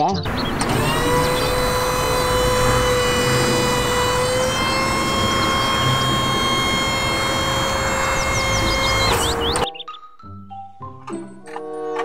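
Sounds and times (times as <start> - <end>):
low engine rumble: 0.3 - 9.6
whine of motor and hydraulics: 0.3 - 9.7.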